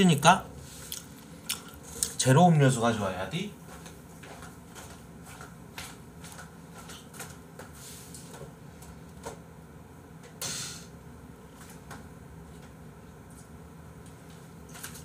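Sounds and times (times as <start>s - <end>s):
low room hum: 0.0s - 15.0s
sharp short hiss: 10.4s - 10.9s.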